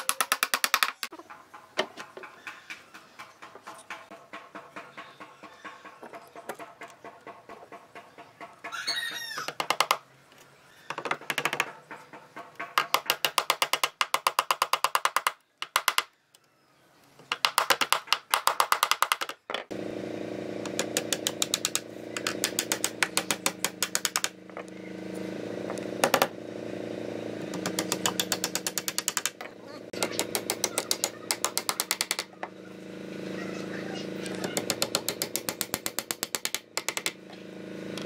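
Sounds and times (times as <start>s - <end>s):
hammer tapping small nails: 0.0s - 1.1s, 9.5s - 10.0s, 10.9s - 16.1s, 17.3s - 19.7s, 20.6s - 24.3s, 27.5s - 32.3s, 34.2s - 37.2s.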